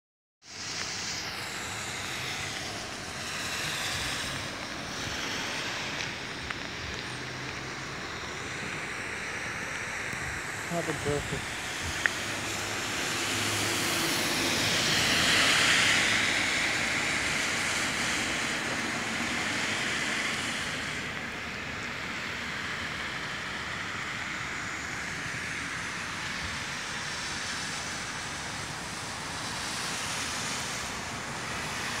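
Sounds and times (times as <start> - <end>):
rainwater running in gutter: 0.4 - 32.0
vehicle passing: 1.0 - 21.0.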